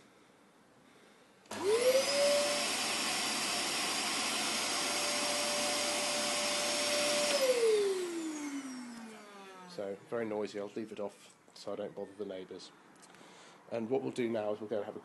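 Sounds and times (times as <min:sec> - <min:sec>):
vacuum cleaner motor whine: 0:01.5 - 0:10.0.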